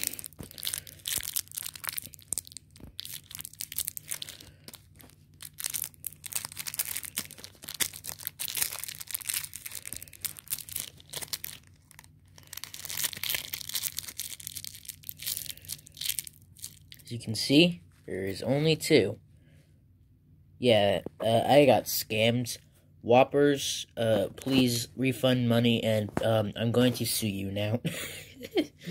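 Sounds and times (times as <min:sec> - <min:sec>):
plastic wrapper crinkling: 0:00.0 - 0:17.2.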